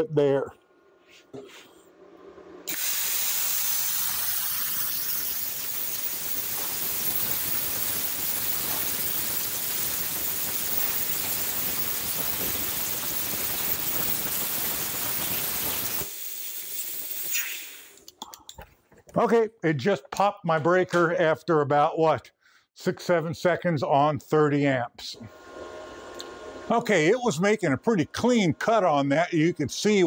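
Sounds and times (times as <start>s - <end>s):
plasma cutter hissing: 2.7s - 18.0s.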